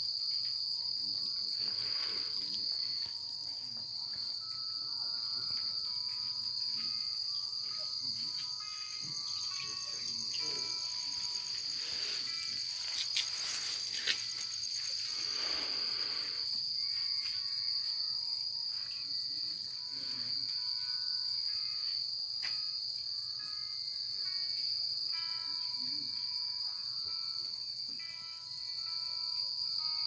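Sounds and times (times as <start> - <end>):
crickets trilling: 0.0 - 30.0.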